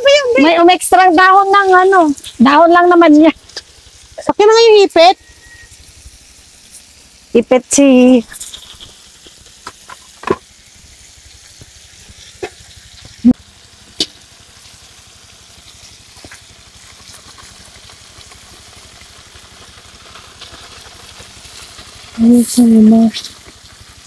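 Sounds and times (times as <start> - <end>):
fish sizzling in a wok: 0.0 - 24.0.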